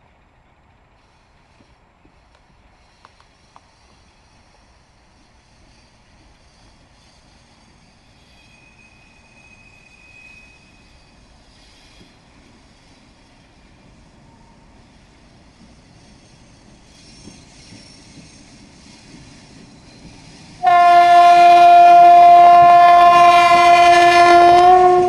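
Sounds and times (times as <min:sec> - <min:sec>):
diesel locomotive engine rumble: 0:00.0 - 0:25.0
high train wheel squeal: 0:00.8 - 0:25.0.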